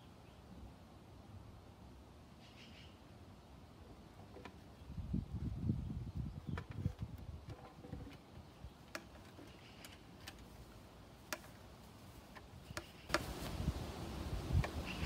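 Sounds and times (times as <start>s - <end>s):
faint bird chirps: 2.4s - 3.1s, 14.8s - 15.0s
equipment clicks and taps: 11.2s - 11.6s.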